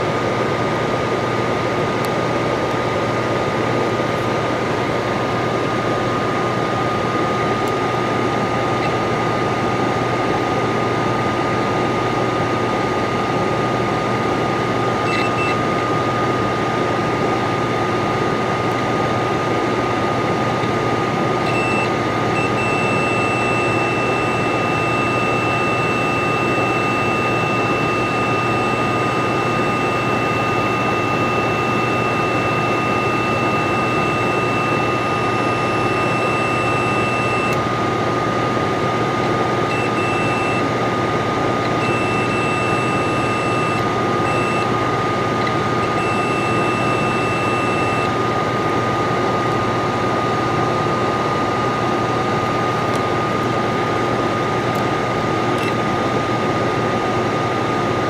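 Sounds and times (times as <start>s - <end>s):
multimeter continuity beeper: 15.0s - 16.0s, 20.6s - 37.7s, 39.7s - 40.8s, 41.5s - 48.2s, 55.6s - 55.9s
constant thin whine: 17.0s - 38.6s, 39.2s - 48.2s.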